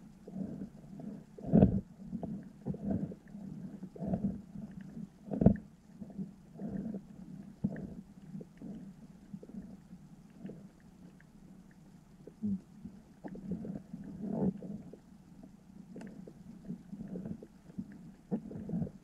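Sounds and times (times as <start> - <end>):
underwater low thumps and rumbles: 0.0 - 19.0.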